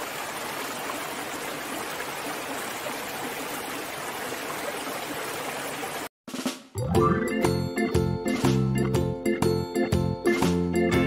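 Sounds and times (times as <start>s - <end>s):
stream rushing over rocks: 0.0s - 6.1s.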